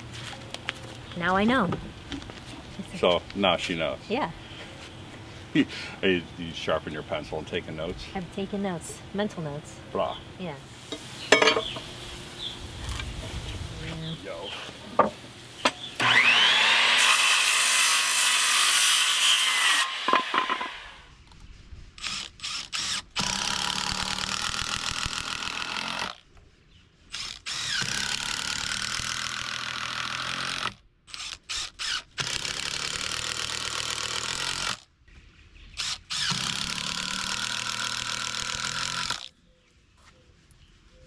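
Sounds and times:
circular saw cutting board: 14.9s - 21.1s
cordless drill boring into wood: 16.0s - 20.9s, 22.0s - 26.2s, 27.1s - 34.8s, 35.8s - 39.3s.

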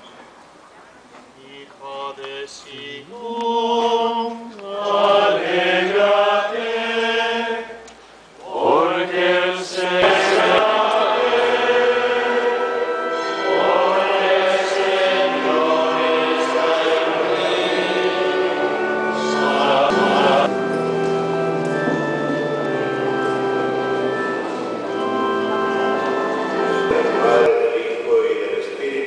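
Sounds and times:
choir singing a hymn: 3.2s - 20.7s, 21.8s - 29.0s.

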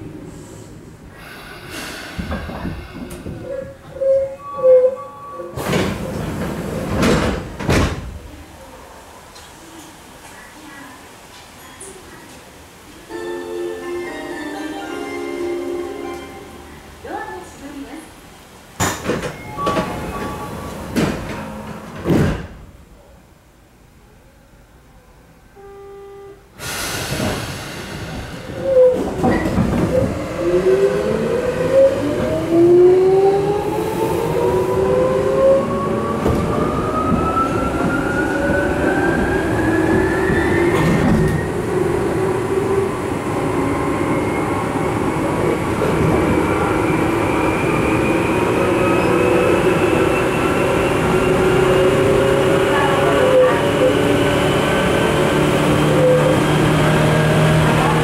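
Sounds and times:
train rumbling running noise: 0.0s - 4.2s, 5.6s - 10.4s, 16.0s - 22.8s, 26.6s - 58.0s.

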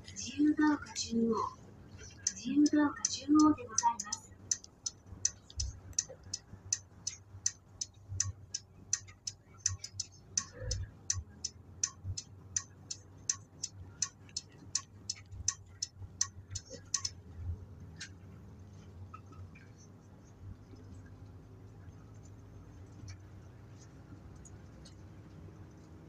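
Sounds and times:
turn signal relay ticking: 2.0s - 17.3s.

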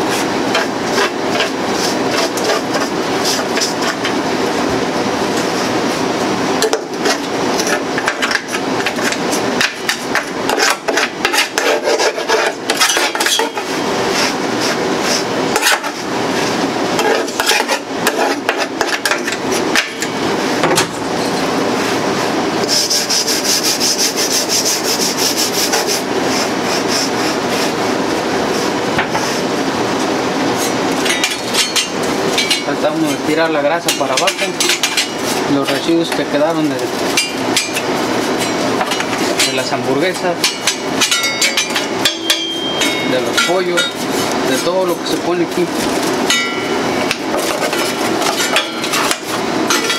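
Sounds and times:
scraping on steel grill: 10.1s - 19.7s.

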